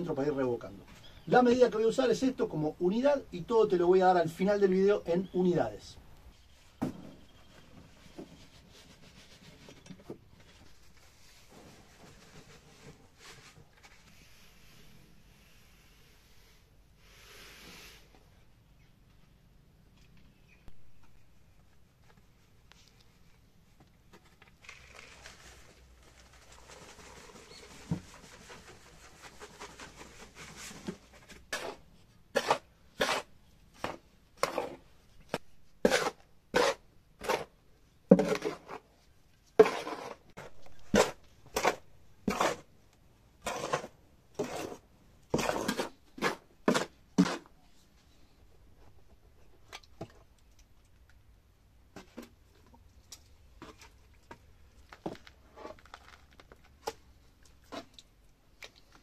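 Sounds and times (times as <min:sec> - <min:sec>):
scraping strokes stirring mix: 0:24.8 - 0:42.7, 0:43.4 - 0:47.7.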